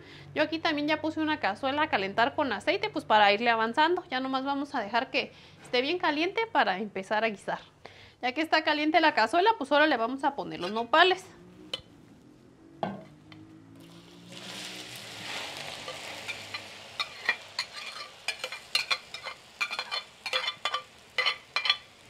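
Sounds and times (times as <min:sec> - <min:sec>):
vegetables sizzling in hot oil: 0:13.8 - 0:22.0
spatula scraping a bowl: 0:14.4 - 0:21.9.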